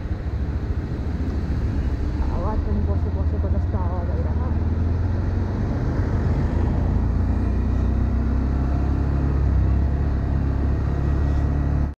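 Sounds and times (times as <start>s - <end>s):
rushing wind: 0.0s - 11.9s
road noise: 0.0s - 12.0s.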